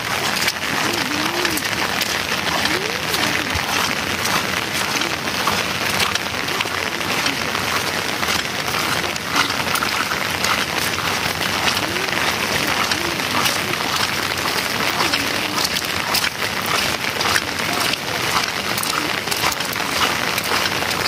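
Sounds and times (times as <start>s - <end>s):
rain pattering: 0.0s - 21.0s.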